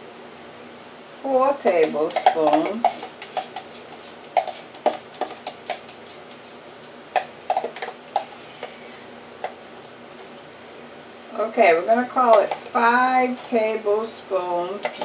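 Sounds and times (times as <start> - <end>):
spoon scraping plastic tub: 1.7 - 9.1, 14.8 - 15.0.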